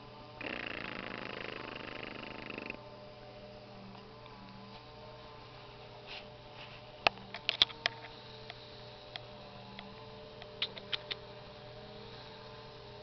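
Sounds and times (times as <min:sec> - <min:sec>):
low electrical hum: 0:00.0 - 0:13.0
sharp clicks: 0:10.4 - 0:11.2.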